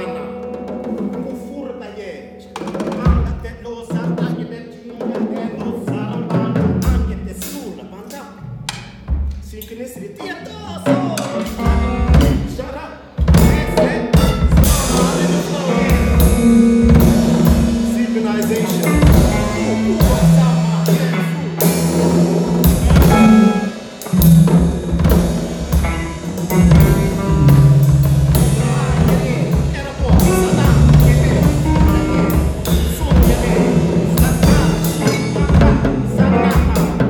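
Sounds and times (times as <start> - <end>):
drums and percussion beating: 0.0 - 1.6, 2.5 - 9.8, 10.8 - 37.0
bass line: 10.4 - 12.6, 13.2 - 37.0
higher instrument lines: 13.3 - 37.0.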